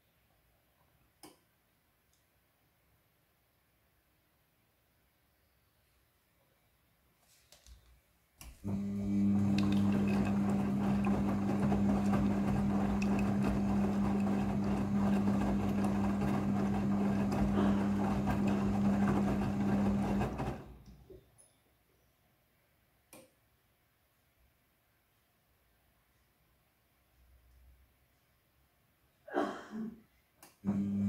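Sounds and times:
washing machine motor hum: 8.4s - 21.1s, 30.6s - 31.0s
wet laundry tumbling: 8.7s - 20.8s.

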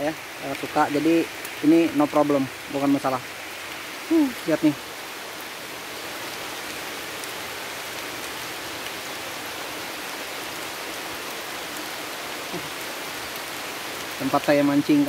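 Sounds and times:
rain on leaves: 0.0s - 15.0s.

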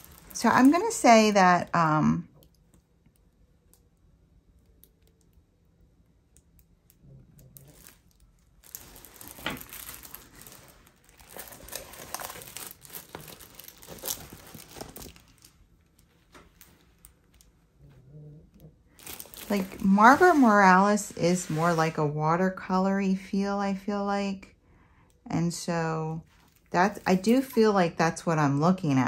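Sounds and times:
plastic film crinkling: 0.0s - 1.8s, 7.4s - 17.6s, 18.9s - 21.9s, 26.3s - 27.8s.

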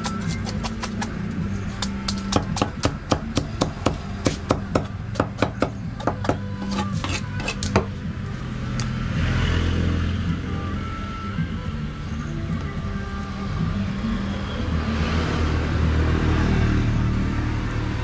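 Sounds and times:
knife scraping fish scales: 0.0s - 2.4s, 6.5s - 7.8s.

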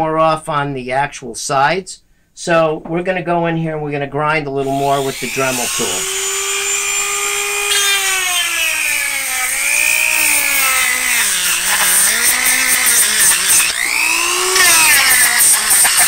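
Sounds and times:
rotary tool grinding plastic: 4.7s - 16.0s.

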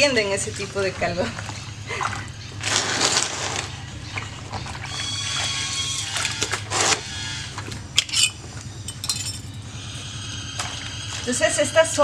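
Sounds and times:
low steady hum: 0.0s - 12.0s
water sloshing and dripping: 0.6s - 8.4s.

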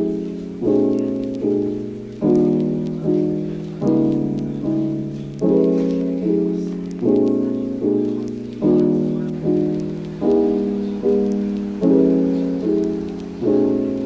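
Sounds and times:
soft piano chords: 0.0s - 14.0s.

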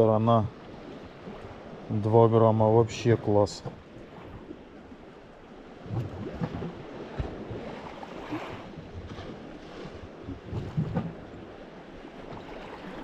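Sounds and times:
sea waves washing on shore: 0.0s - 13.0s
wind noise on microphone: 5.8s - 11.5s.

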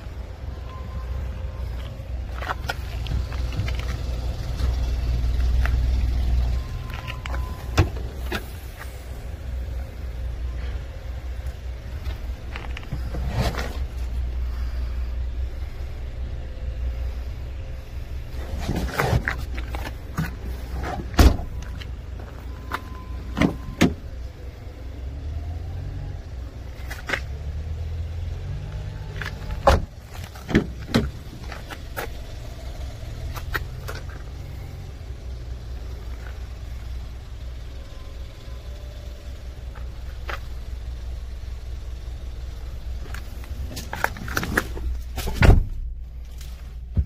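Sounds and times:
low steady rumble: 0.0s - 47.0s
clunks and clicks of car panels: 6.8s - 8.5s, 18.4s - 24.0s, 29.2s - 32.2s, 43.1s - 45.9s.

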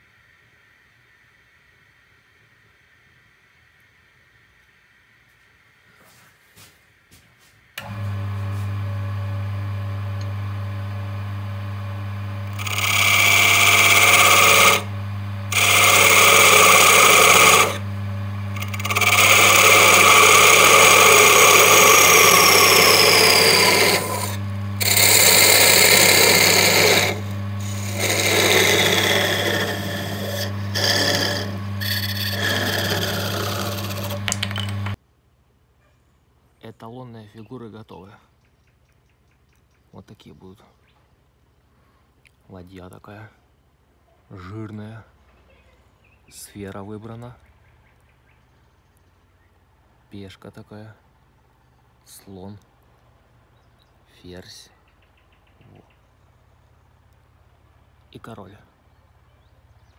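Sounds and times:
wood lathe humming: 7.8s - 35.0s
hissing wood shaving: 12.0s - 35.0s.

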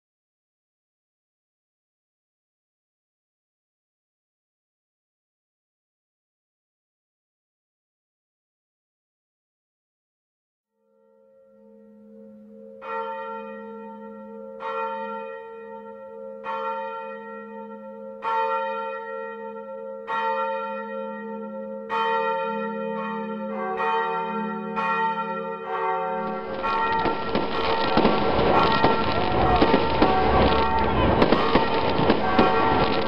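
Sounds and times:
church bells ringing: 11.0s - 33.0s.

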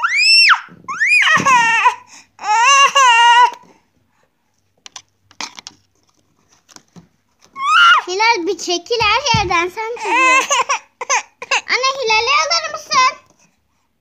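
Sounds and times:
child squealing: 0.0s - 3.6s, 7.6s - 8.1s
child wailing: 0.0s - 3.6s, 7.6s - 8.1s, 10.0s - 10.7s
faint taps and rustles: 3.5s - 7.6s, 8.8s - 9.8s.

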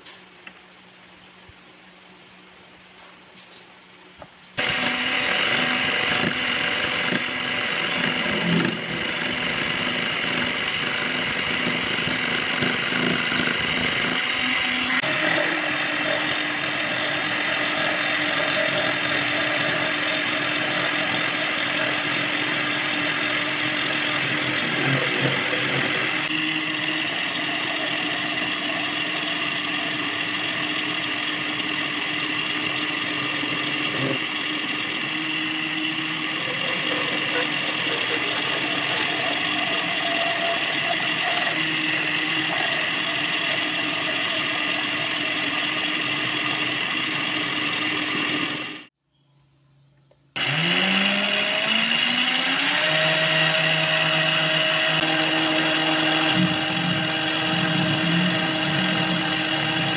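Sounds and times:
lathe motor humming: 4.6s - 48.9s, 50.4s - 59.9s
cutting tool scraping metal: 7.8s - 16.4s, 36.0s - 43.2s.

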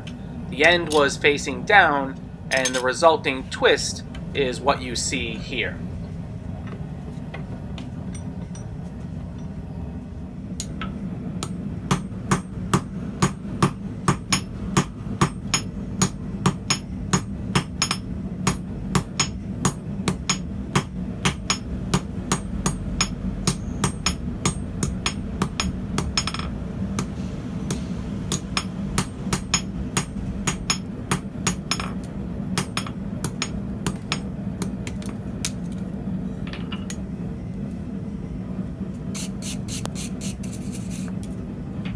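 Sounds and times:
low hum: 0.0s - 41.9s
hammer striking steel on anvil: 11.4s - 27.1s, 27.7s - 34.8s.

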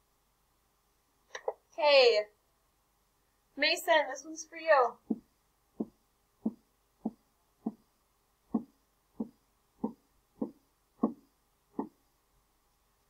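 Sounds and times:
dull taps on a whiteboard: 8.5s - 11.2s.

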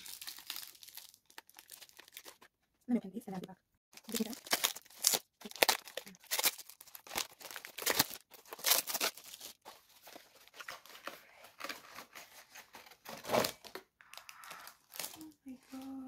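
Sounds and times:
paper and plastic wrapping tearing: 0.0s - 2.5s, 4.0s - 15.9s.

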